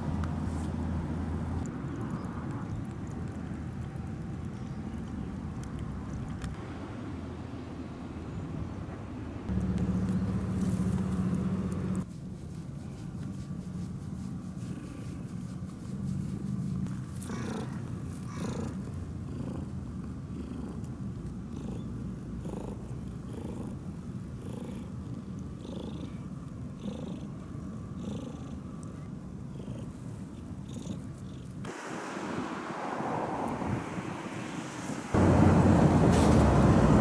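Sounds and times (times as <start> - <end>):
cat purring: 14.6 - 31.6.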